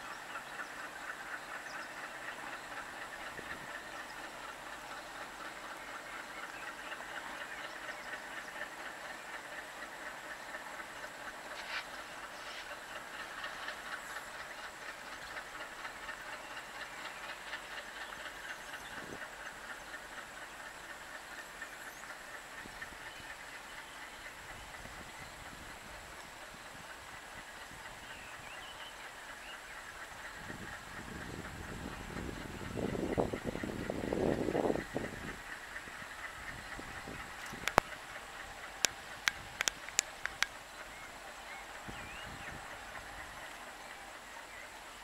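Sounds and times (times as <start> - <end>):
distant diesel train running: 0.0 - 45.0.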